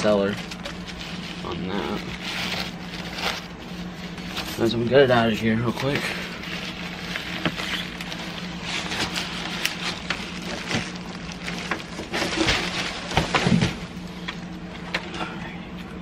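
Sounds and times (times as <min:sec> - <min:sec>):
packing peanuts rustling and crunching: 0:00.0 - 0:15.0
cardboard scraping: 0:05.8 - 0:14.0.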